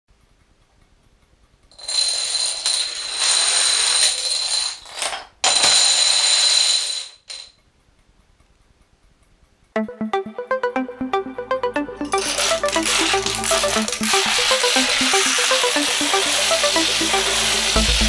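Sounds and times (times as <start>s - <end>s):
dominoes clattering: 1.7s - 7.6s, 12.2s - 17.8s.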